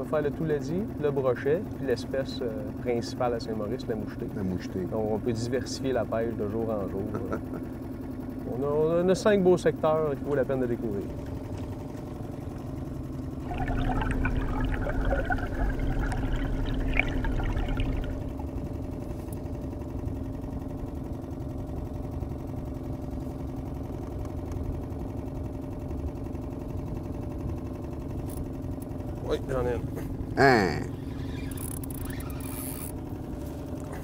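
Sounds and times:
boat motor running: 0:00.0 - 0:34.0
water splashing and rushing: 0:13.4 - 0:18.6.

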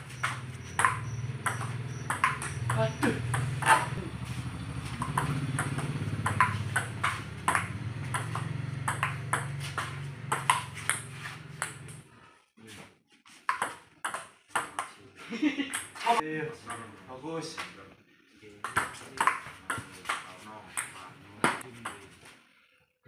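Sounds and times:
table tennis ball clicking: 0:00.2 - 0:03.9, 0:05.0 - 0:12.0.

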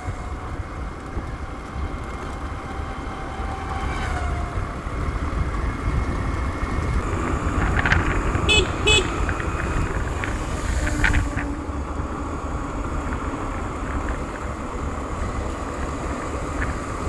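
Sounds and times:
scooter engine running: 0:00.0 - 0:17.0
wind rumble on microphone: 0:00.0 - 0:17.0.

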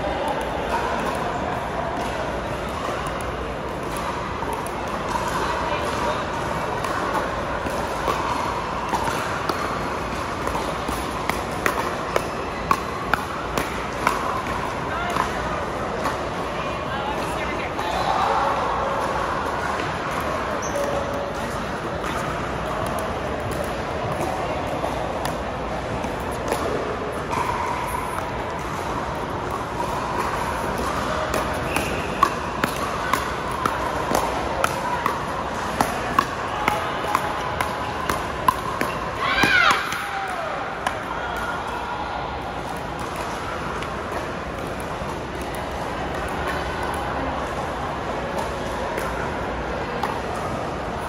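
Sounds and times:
indoor court hall background noise: 0:00.0 - 0:51.0
paddles striking pickleball: 0:06.7 - 0:16.3, 0:26.0 - 0:41.1.

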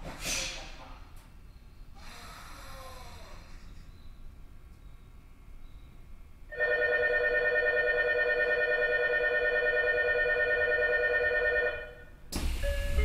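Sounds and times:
platform departure bell ringing: 0:06.5 - 0:12.0, 0:12.6 - 0:13.0.

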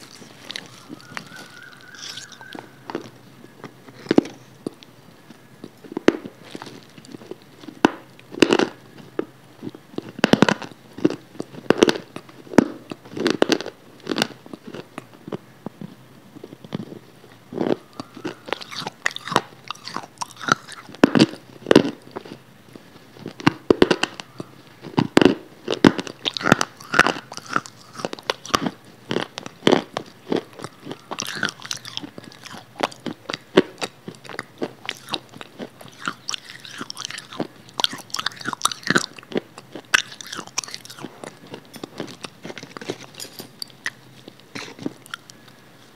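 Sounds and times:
wet mouth clicks: 0:00.0 - 0:04.9, 0:18.0 - 0:21.4, 0:30.5 - 0:45.6
person chewing crunchy food: 0:00.0 - 0:45.9.

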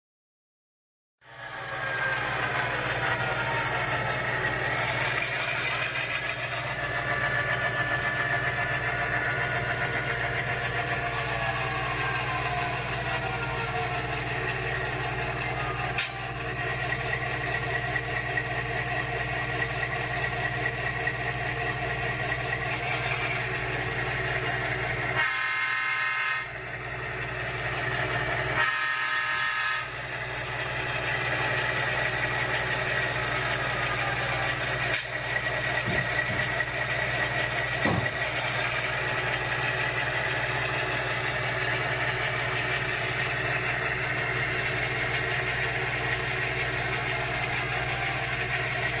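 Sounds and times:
diesel engine rumble: 0:01.2 - 0:49.0
locomotive horn blasts: 0:25.1 - 0:26.6, 0:28.5 - 0:30.0.

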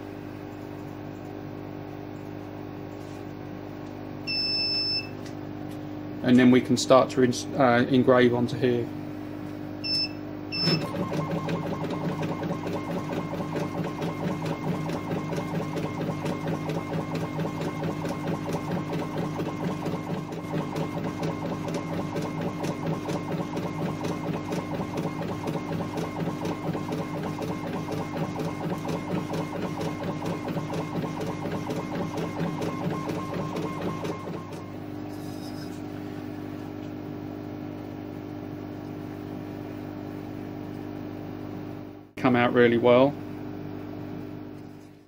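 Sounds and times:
steady machine hum: 0:00.0 - 0:45.0
high beep: 0:04.3 - 0:05.2, 0:09.8 - 0:10.8.

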